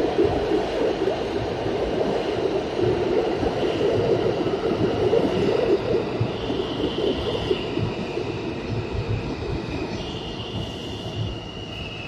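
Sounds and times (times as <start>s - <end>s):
subway train wheels rumbling: 0.0s - 12.0s
faint high whine: 3.6s - 12.0s.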